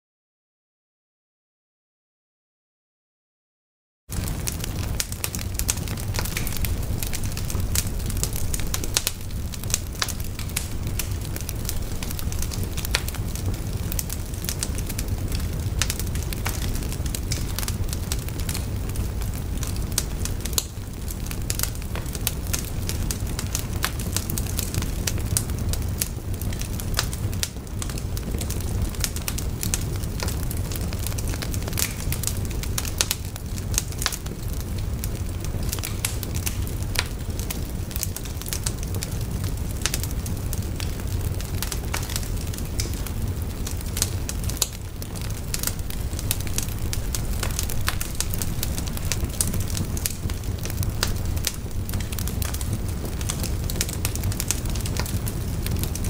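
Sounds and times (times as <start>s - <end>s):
logs crackling and popping: 4.1s - 56.0s
wood fire rumbling: 4.1s - 56.0s.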